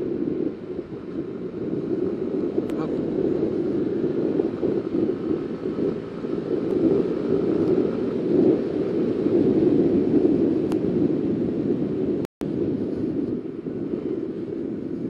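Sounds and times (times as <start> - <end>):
motorcycle running: 0.0 - 15.0
wind rushing on microphone: 0.0 - 15.0.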